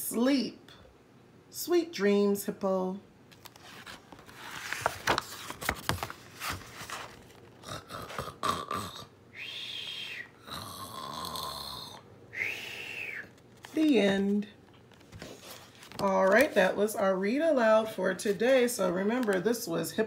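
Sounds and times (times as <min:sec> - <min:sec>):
book page turning: 0:03.3 - 0:07.5, 0:13.3 - 0:16.7
person mock snoring: 0:07.6 - 0:12.0.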